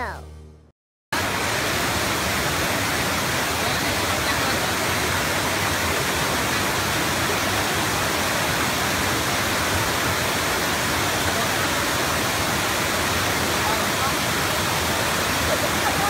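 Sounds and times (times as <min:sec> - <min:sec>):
waterfall rushing: 0:01.2 - 0:16.0.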